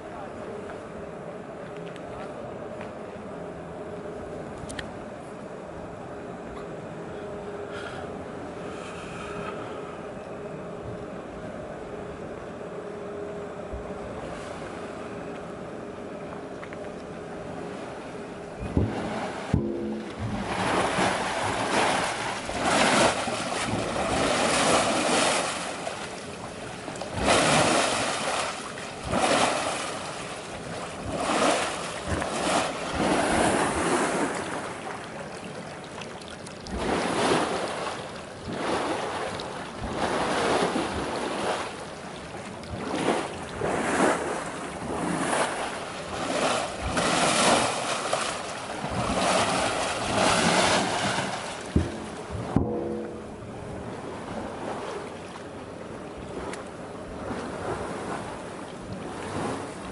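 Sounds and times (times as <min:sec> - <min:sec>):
wastewater churning and splashing: 0:16.7 - 0:59.9.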